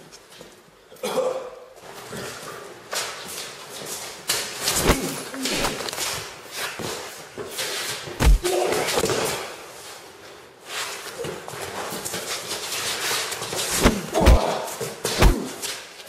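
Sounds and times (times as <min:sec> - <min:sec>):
punches and scuffles: 0:03.0 - 0:09.6, 0:10.7 - 0:16.0
heavy thuds: 0:08.2 - 0:08.6, 0:13.8 - 0:14.6, 0:15.2 - 0:15.6.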